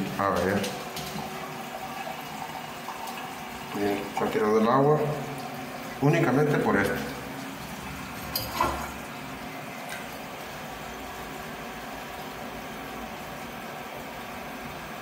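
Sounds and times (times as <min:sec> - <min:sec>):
toilet water running: 0:00.0 - 0:15.0.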